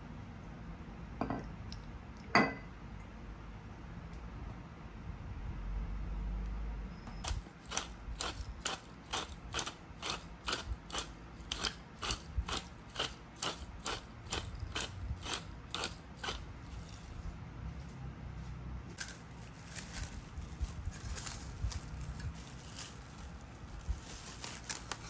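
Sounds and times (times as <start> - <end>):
pepper grinder clicking: 7.2 - 17.2.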